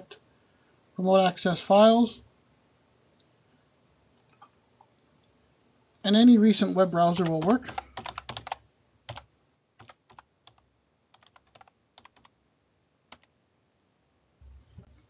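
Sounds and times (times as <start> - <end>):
computer keyboard keys clicking: 7.2 - 12.3.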